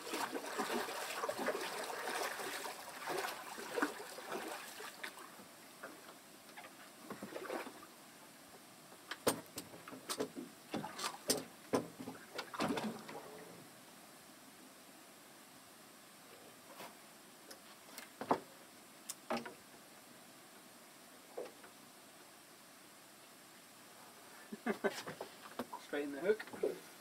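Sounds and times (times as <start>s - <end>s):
water rustling: 0.0s - 8.2s, 9.0s - 13.8s
knocks and slaps on boat: 9.2s - 12.8s.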